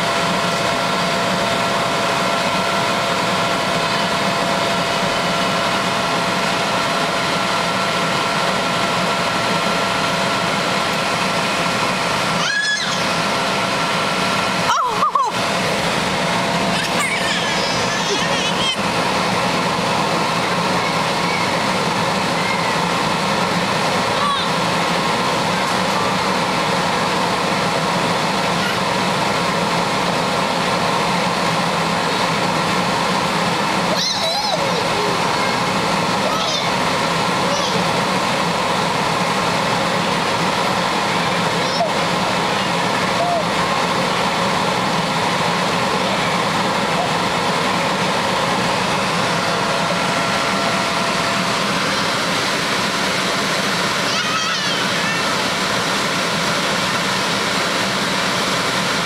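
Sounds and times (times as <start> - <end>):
electric air blower droning: 0.0 - 59.0
child's voice: 33.9 - 36.7, 37.4 - 37.9, 54.0 - 55.2.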